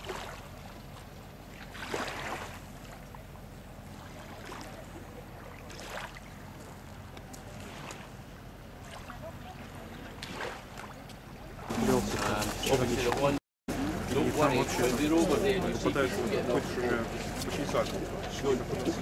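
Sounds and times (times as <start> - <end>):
small waves lapping on rocks: 0.0 - 3.3, 3.9 - 13.4
soft splashes: 0.0 - 12.8
low background rumble: 0.0 - 19.0.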